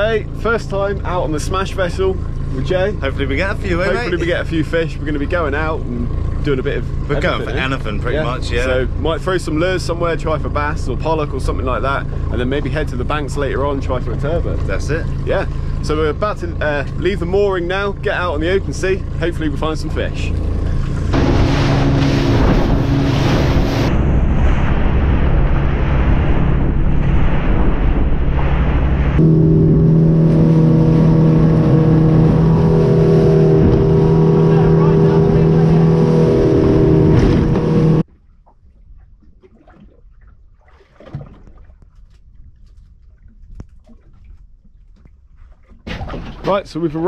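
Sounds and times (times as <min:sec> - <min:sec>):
motorboat engine droning: 0:00.0 - 0:39.1
low rumble: 0:00.0 - 0:39.2
water rushing off hull: 0:00.0 - 0:47.0
small waves lapping: 0:09.8 - 0:24.0, 0:28.3 - 0:47.0
wind buffeting microphone: 0:20.2 - 0:38.0.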